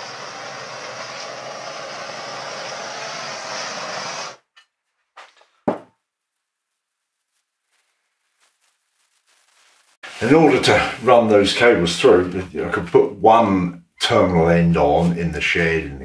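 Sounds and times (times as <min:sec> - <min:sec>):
butane torch hissing: 0:00.0 - 0:04.4
small handling noises: 0:04.5 - 0:10.2
sharp knock: 0:05.7 - 0:05.9.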